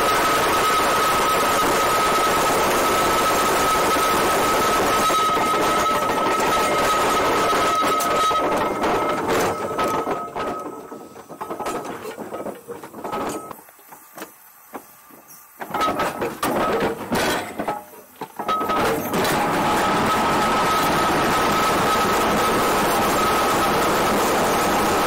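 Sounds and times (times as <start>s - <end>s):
metal clanks and knocks: 5.2s - 13.6s, 15.6s - 20.2s
steam hissing: 19.0s - 25.0s.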